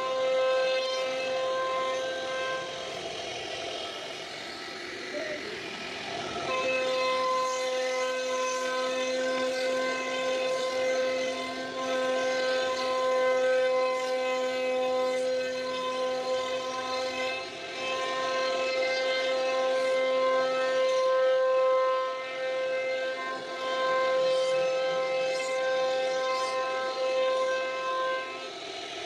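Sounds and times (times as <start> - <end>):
router spindle whining: 0.0 - 29.0.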